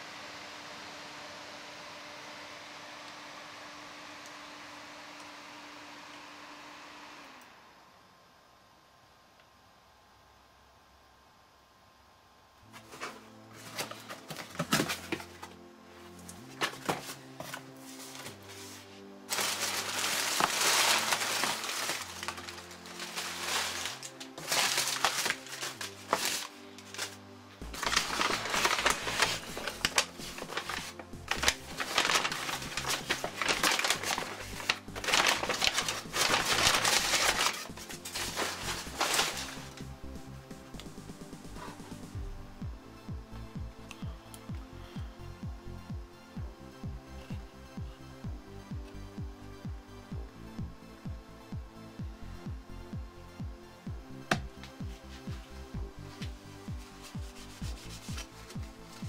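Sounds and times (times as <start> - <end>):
background music sustained chords: 12.6 - 59.0
cardboard box rustling: 12.8 - 15.6, 16.5 - 39.8
paper bag crinkling: 16.5 - 39.9.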